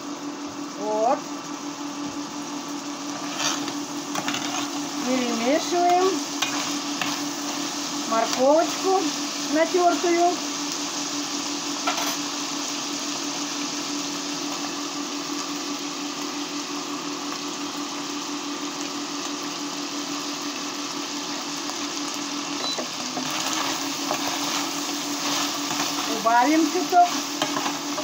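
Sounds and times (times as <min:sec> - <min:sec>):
steady low hum: 0:00.0 - 0:17.1, 0:20.9 - 0:28.0
meat sizzling in oil: 0:00.0 - 0:28.0
food being stirred in pan: 0:03.0 - 0:09.6, 0:22.8 - 0:28.0.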